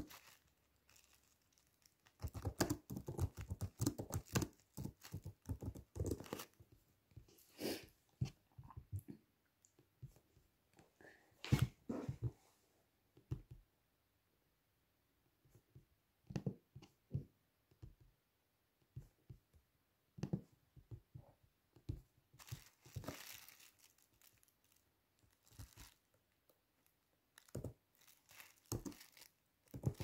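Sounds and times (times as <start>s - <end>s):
crinkling rustle: 0.0s - 6.6s, 22.4s - 26.2s, 27.3s - 30.0s
soft handling knocks and taps: 9.8s - 12.4s, 13.1s - 13.6s, 15.5s - 18.2s, 18.8s - 22.7s.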